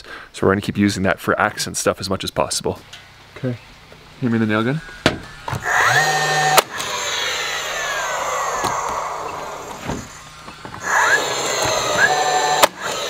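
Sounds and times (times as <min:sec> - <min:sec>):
nail gun motor whine: 0:04.8 - 0:13.0
nail gun firing crack: 0:05.0 - 0:13.0.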